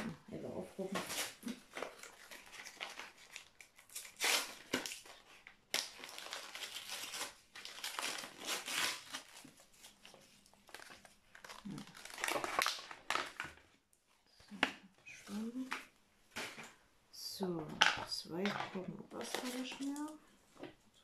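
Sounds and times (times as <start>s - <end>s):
packaging rustling and crinkling: 0.8s - 13.8s, 18.5s - 20.8s.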